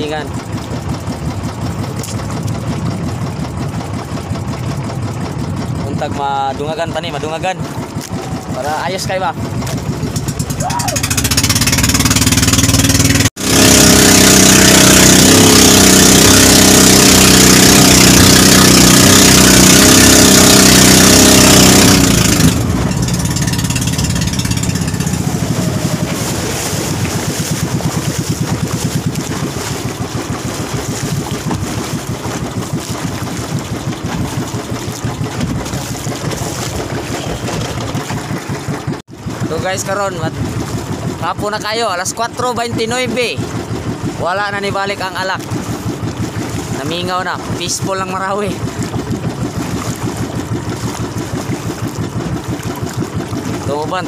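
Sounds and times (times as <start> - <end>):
boat engine puttering: 0.0 - 54.0.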